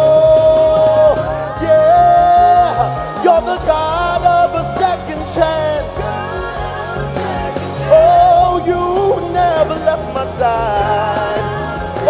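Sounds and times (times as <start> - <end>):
live backing music: 0.0 - 12.0
man singing into microphone: 0.0 - 12.0.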